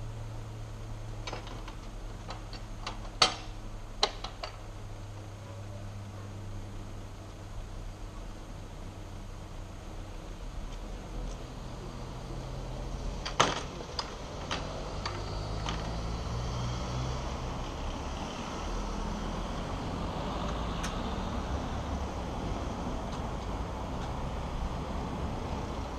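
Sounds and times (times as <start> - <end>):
road noise and engine hum: 0.0 - 25.9
cars driving over crossing: 6.0 - 25.9.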